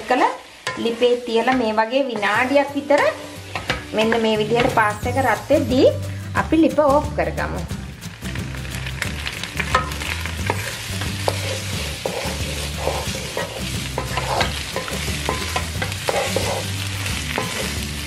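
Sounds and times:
light sizzle: 0:00.0 - 0:06.2, 0:07.4 - 0:18.0
spatula scraping and knocking pan: 0:09.6 - 0:17.8.

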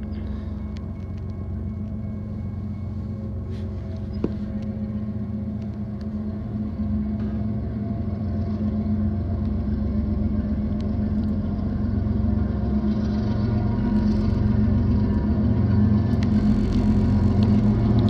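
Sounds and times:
diesel locomotive rumble: 0:00.0 - 0:18.0.

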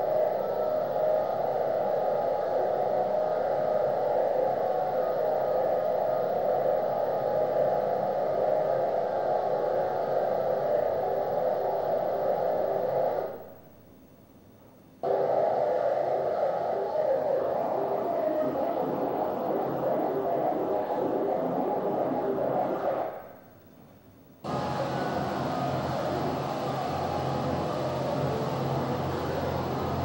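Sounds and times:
hissing electronic drone: 0:15.0 - 0:23.2, 0:24.5 - 0:30.0.

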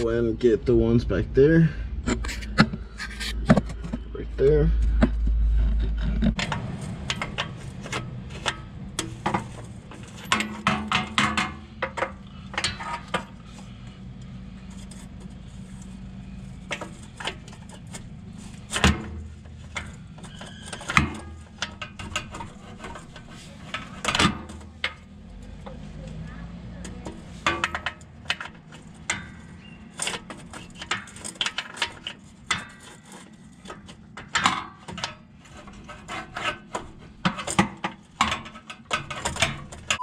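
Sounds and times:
low steady hum: 0:00.0 - 0:40.0
sharp metal knocks: 0:04.8 - 0:13.3.

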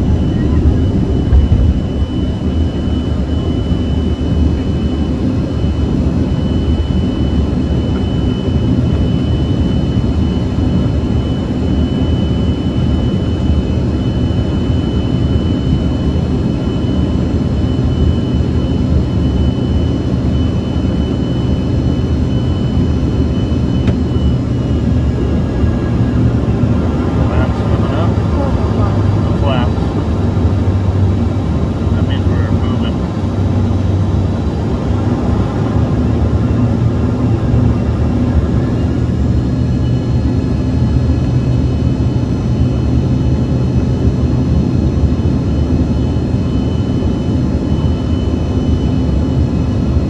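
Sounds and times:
thin high whine: 0:00.0 - 0:05.5
jet engine cabin rumble: 0:00.0 - 0:50.0.

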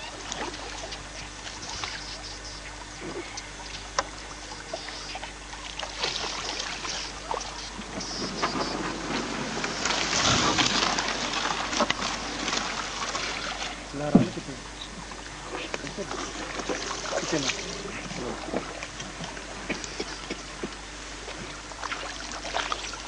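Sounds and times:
water sloshing: 0:00.0 - 0:23.0
reeds brushing and rustling: 0:04.7 - 0:13.9.

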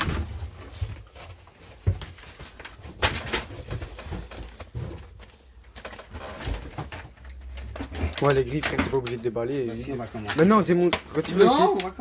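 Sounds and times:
cardboard box rustling and knocking: 0:00.0 - 0:07.1.

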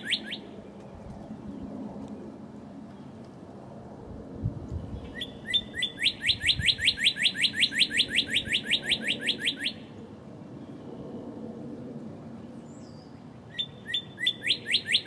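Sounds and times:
bird singing rising notes: 0:00.0 - 0:01.7, 0:04.8 - 0:10.0, 0:12.6 - 0:15.0.

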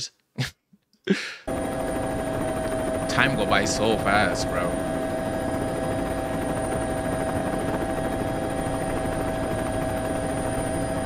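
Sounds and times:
helicopter flying: 0:01.5 - 0:11.0.

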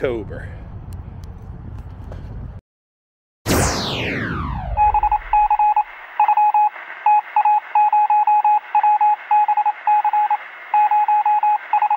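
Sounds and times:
morse code beeping: 0:04.8 - 0:11.9.

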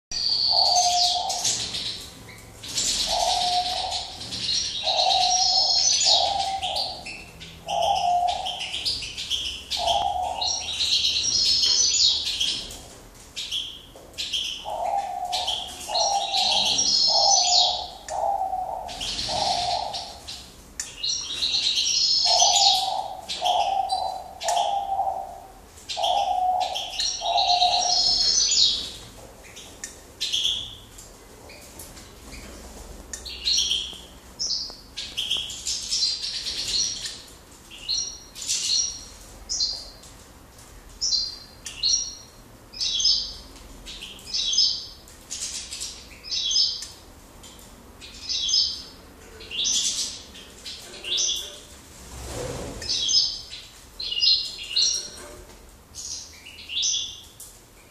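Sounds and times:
finches twittering and singing: 0:00.1 - 0:12.8, 0:13.4 - 0:30.9
dove cooing: 0:00.4 - 0:02.0, 0:02.8 - 0:08.9, 0:09.7 - 0:10.8, 0:14.6 - 0:20.3, 0:21.4 - 0:28.9.

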